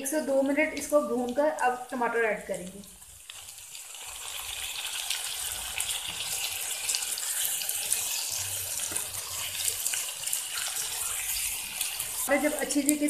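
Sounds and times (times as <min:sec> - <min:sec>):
oil sizzling in a frying pan: 0:00.0 - 0:13.0
spatula stirring in pan: 0:02.8 - 0:13.0.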